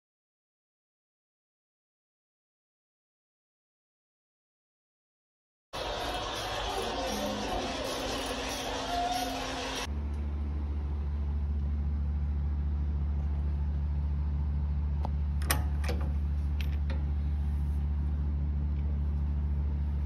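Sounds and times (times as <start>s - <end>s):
motor humming: 5.8s - 12.4s.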